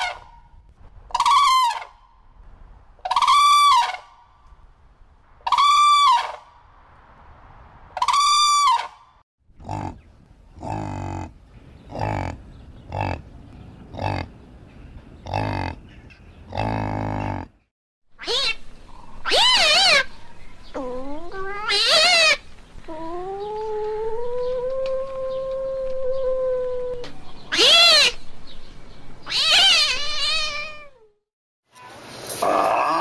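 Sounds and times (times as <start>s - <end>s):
crane calling loudly: 1.1s - 2.0s, 3.0s - 4.2s, 5.4s - 6.4s
yak grunting: 9.6s - 10.0s, 10.6s - 13.3s, 15.2s - 15.9s, 16.5s - 17.6s.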